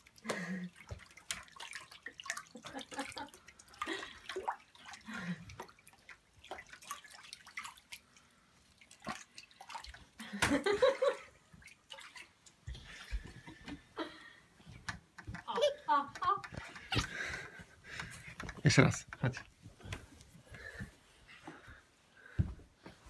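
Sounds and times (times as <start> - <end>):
wooden crib creaking and knocking: 14.7 - 20.1.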